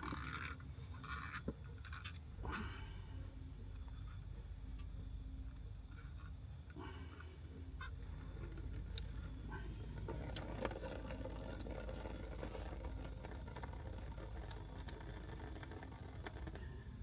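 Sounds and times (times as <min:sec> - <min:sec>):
liquid trickling into plastic tub: 0:09.9 - 0:16.6.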